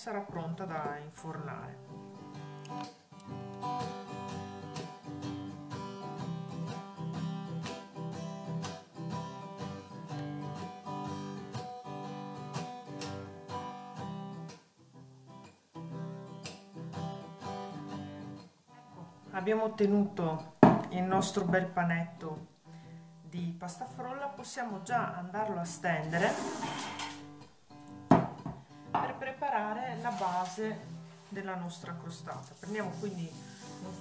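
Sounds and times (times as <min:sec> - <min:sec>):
strummed acoustic guitar: 0:00.3 - 0:19.6, 0:22.6 - 0:23.1, 0:26.1 - 0:31.3.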